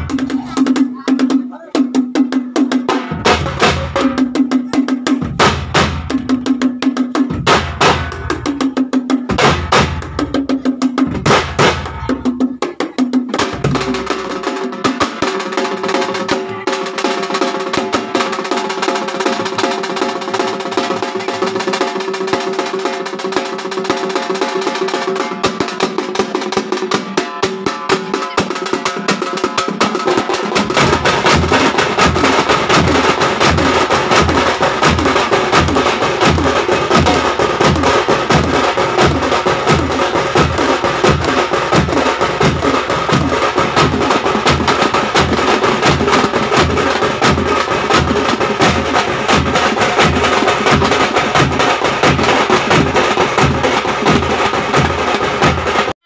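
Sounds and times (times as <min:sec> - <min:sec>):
frame drums beaten rapidly: 0:00.0 - 0:56.0
deep bass drum beat: 0:02.8 - 0:12.6, 0:13.3 - 0:14.6, 0:30.5 - 0:55.8.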